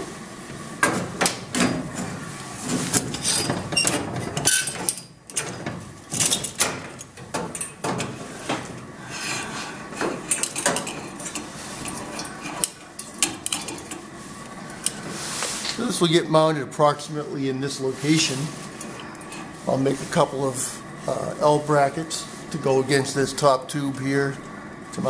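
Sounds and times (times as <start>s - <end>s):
metal parts clinking and knocking: 10.2s - 13.9s.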